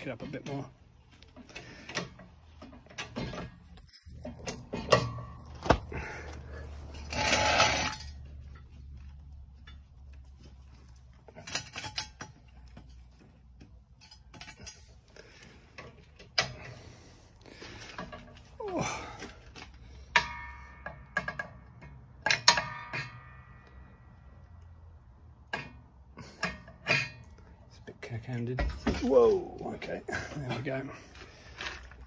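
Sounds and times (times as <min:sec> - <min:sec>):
metallic clinks and knocks: 0:00.2 - 0:15.0, 0:19.7 - 0:23.8.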